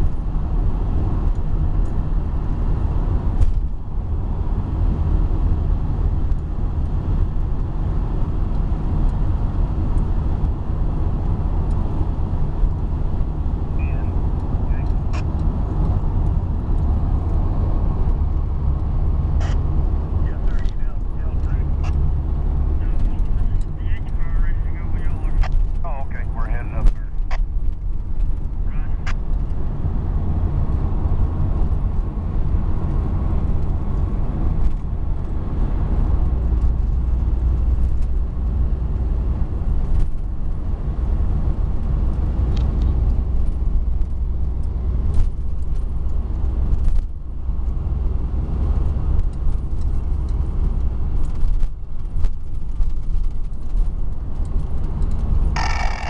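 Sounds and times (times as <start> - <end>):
car cabin road rumble: 0.0 - 56.0
faint clicks and rattles: 18.0 - 29.7, 48.6 - 56.0.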